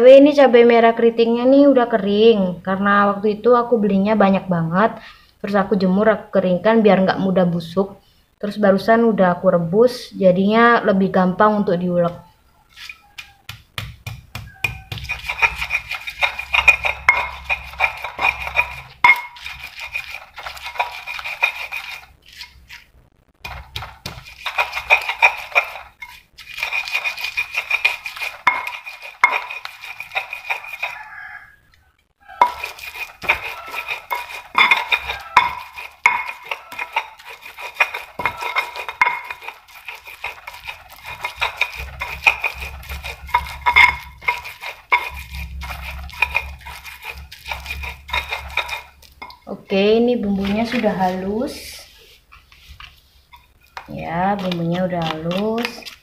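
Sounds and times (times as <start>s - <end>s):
stone pestle grinding in mortar: 12.7s - 22.8s, 23.4s - 31.3s, 32.3s - 56.0s.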